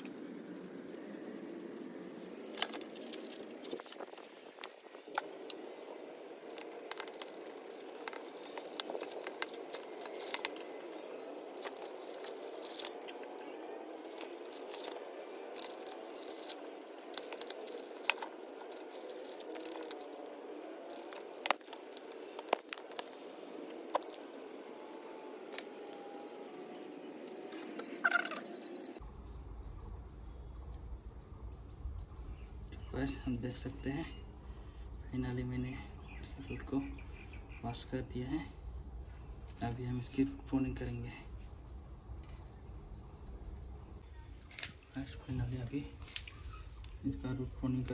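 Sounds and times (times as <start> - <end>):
stick scraping soil: 6.4 - 10.8, 11.4 - 24.7
soil clods breaking with clicks: 11.6 - 20.3
steady low hum: 28.7 - 47.9.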